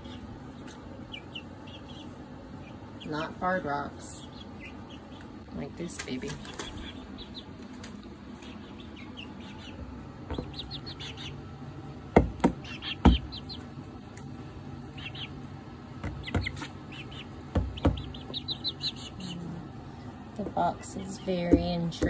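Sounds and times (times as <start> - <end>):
chicks peeping: 0.0 - 22.0
beaks pecking cardboard: 9.6 - 11.2, 12.2 - 13.7, 16.0 - 19.2, 21.2 - 22.0.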